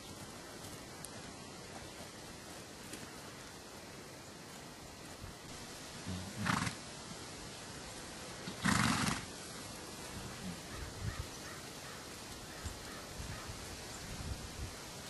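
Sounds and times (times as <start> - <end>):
horse calling: 6.0 - 6.8, 8.4 - 9.4.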